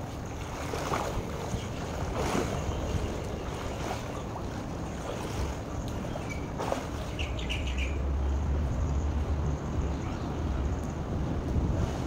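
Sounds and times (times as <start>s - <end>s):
swimming stroke swishes: 0.0s - 7.2s
pool water splashing: 0.0s - 9.3s
wind rumbling on microphone: 0.0s - 12.0s.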